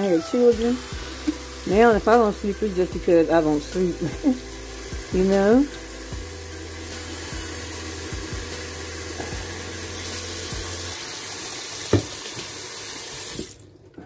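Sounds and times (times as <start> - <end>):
tap water into steel sink: 11.8 - 12.6.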